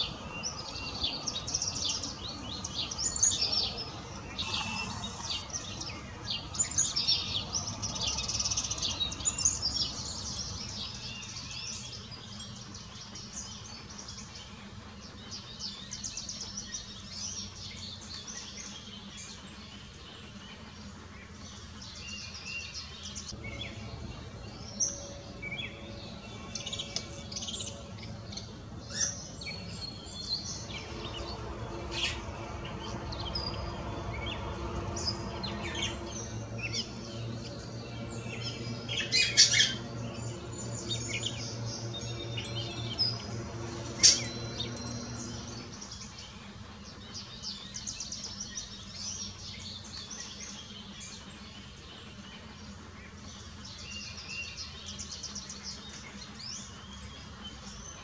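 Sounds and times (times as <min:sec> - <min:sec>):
songbirds chirping and singing: 0:00.0 - 0:58.0.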